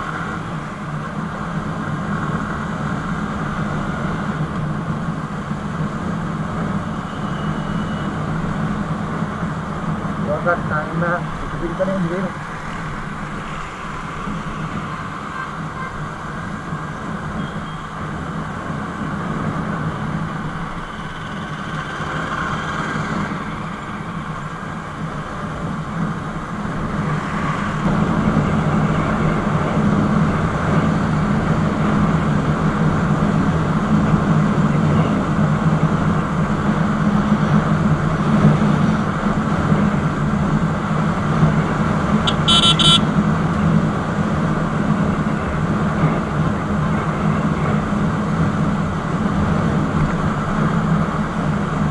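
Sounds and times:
road noise: 0.0s - 51.9s
rushing wind: 0.0s - 51.9s
motorcycle engine running: 42.2s - 43.2s.

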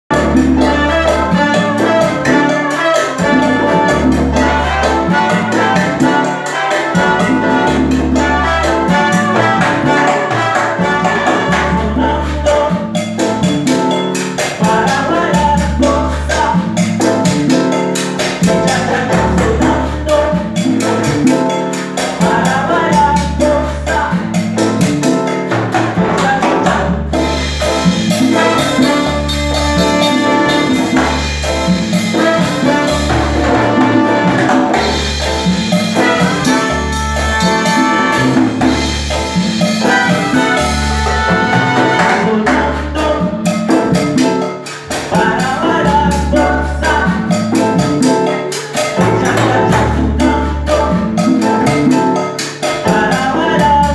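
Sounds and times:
salsa band playing: 0.0s - 53.9s
brass horns playing held lines: 0.1s - 12.7s, 26.0s - 43.3s.

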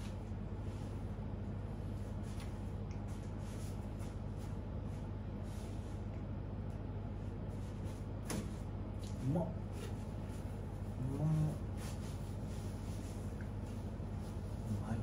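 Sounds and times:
air conditioner humming: 0.0s - 15.0s.

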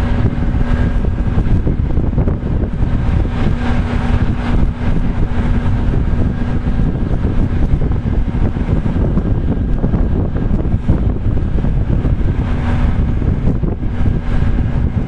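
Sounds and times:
steady low hum: 0.0s - 15.0s
wind buffeting microphone: 0.0s - 15.0s.

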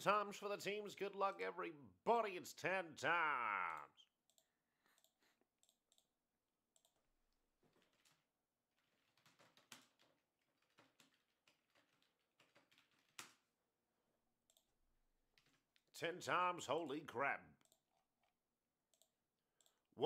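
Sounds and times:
mouse clicking: 3.7s - 6.1s, 6.7s - 7.0s
keyboard typing: 3.7s - 13.5s.

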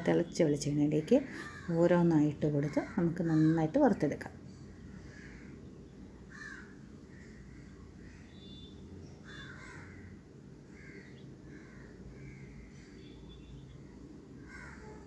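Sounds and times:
low steady hum: 0.0s - 15.0s
crows cawing: 1.2s - 1.9s, 2.6s - 3.8s, 4.9s - 5.6s, 6.3s - 13.1s, 14.4s - 15.0s.

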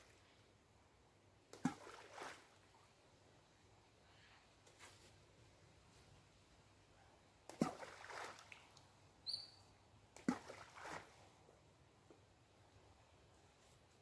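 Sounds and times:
balls splashing into water: 1.5s - 2.8s, 7.4s - 8.9s, 10.1s - 11.3s.

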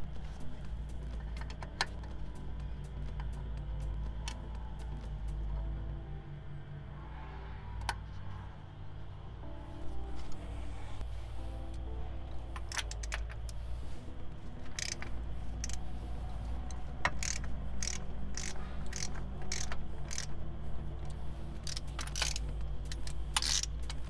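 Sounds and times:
steady low hum: 0.0s - 24.0s
metallic clinks of wrench: 17.1s - 20.4s, 21.6s - 24.0s.

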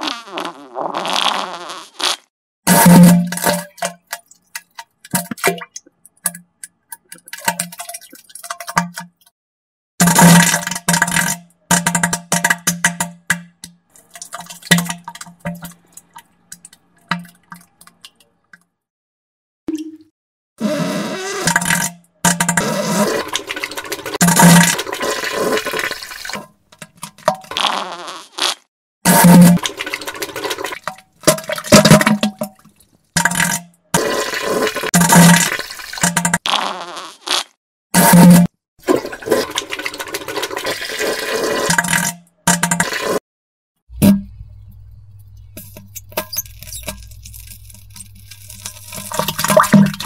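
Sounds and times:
wet sputtering fart sound: 0.0s - 3.6s, 20.6s - 26.4s, 27.2s - 30.8s, 33.2s - 43.2s
low buzzing tone: 43.9s - 46.0s.

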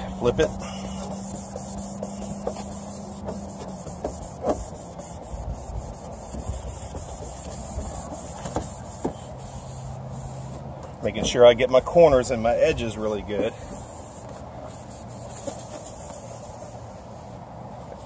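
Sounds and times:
towelette scrubbing plastic lens: 0.0s - 10.7s.

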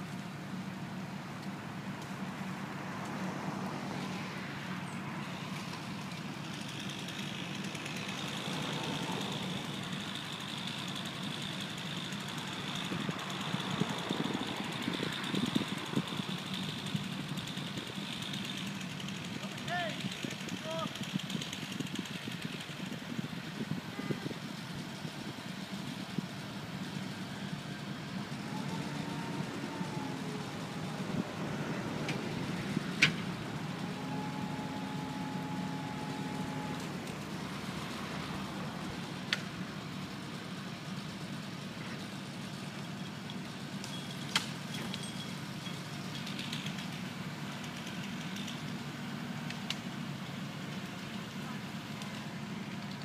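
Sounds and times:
crane engine humming: 0.0s - 53.0s
steady whine: 26.4s - 41.2s.

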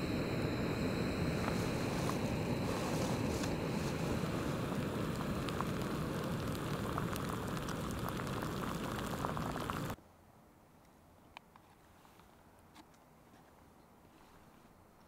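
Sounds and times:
stove burner hissing: 0.0s - 10.0s
heating water crackling: 1.1s - 10.0s.

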